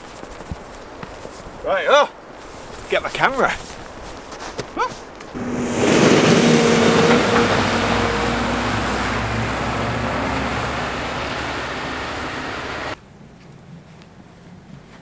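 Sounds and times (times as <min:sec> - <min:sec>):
tyre noise on slushy road: 0:05.3 - 0:13.0
diesel engine hum: 0:05.4 - 0:13.0.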